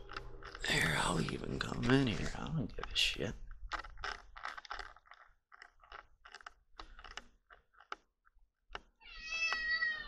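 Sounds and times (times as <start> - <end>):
camera handling crunching and clicking: 2.1 - 8.0.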